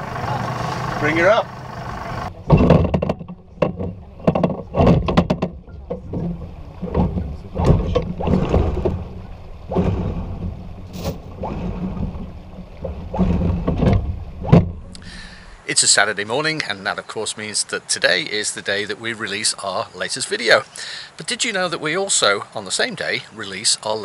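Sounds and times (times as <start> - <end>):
windlass low hum: 0.0 - 15.7.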